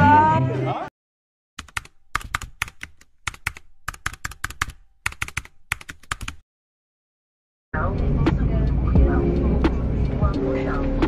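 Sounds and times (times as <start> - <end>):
keyboard key clicks: 1.6 - 6.4.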